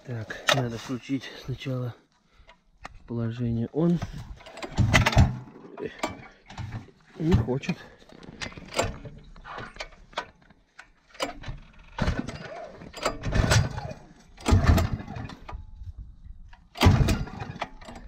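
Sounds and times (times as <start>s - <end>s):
generator recoil starter pulls: 3.9s - 15.7s, 16.6s - 18.0s
engine cranking without catching: 4.0s - 7.0s, 11.0s - 15.8s, 16.6s - 18.0s.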